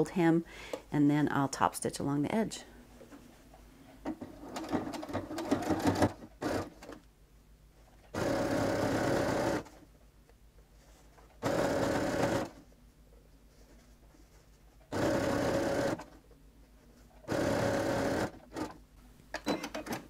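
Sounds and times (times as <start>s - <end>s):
sewing machine running: 4.6s - 6.8s, 8.1s - 9.8s, 11.4s - 12.6s, 14.9s - 16.2s, 17.2s - 18.8s.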